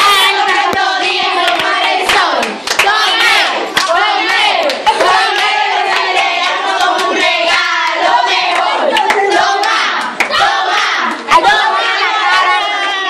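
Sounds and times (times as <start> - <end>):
group singing a celebration song: 0.0 - 13.0
hand claps: 0.7 - 3.0, 8.5 - 10.4.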